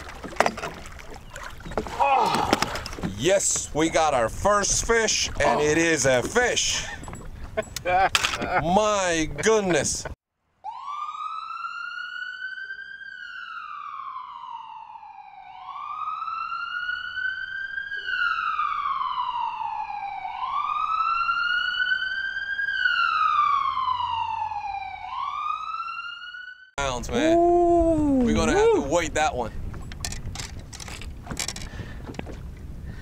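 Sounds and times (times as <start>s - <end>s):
wailing siren: 10.6s - 26.8s.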